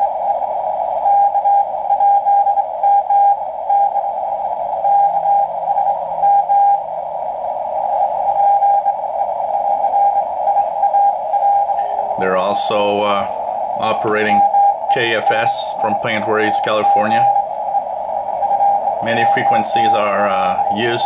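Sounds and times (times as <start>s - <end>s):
radio static hiss: 0.0s - 21.0s
morse code tone: 9.8s - 21.0s.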